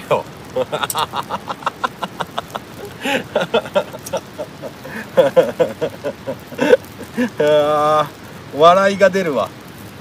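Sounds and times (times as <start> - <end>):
fat sizzling and popping on charcoal: 0.0 - 10.0
man laughing: 0.4 - 7.8.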